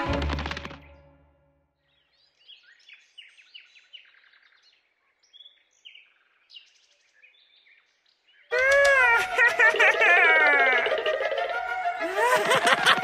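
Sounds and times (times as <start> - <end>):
music: 0.0 - 1.6, 9.2 - 13.0.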